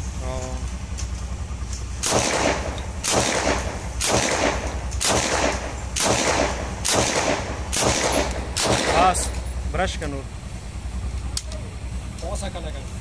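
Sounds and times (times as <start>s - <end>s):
submachine gun shots echoing: 2.0s - 9.5s.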